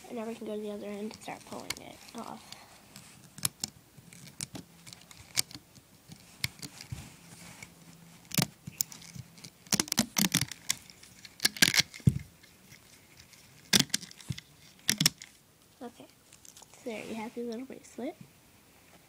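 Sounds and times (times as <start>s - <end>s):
rubber bands clicking on loom: 8.2s - 12.2s, 13.6s - 15.3s.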